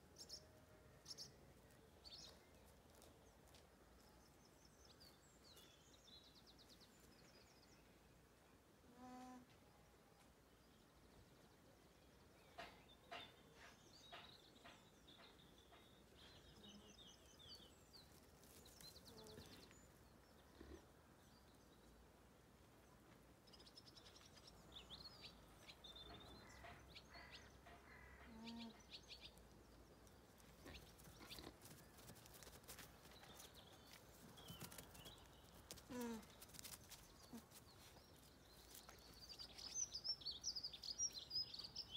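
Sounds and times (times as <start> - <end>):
small birds chirping: 10.6 - 22.0, 22.9 - 41.9.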